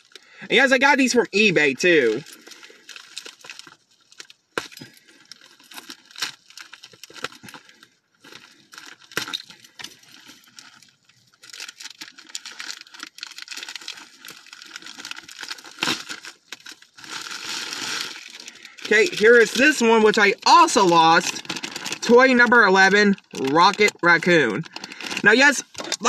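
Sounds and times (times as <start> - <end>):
plastic bag crinkling: 1.3 - 26.0.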